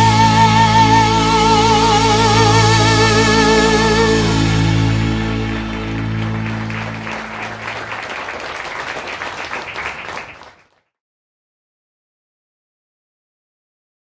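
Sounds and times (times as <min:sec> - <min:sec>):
held chord of a song: 0:00.0 - 0:09.3
audience clapping: 0:03.2 - 0:10.8.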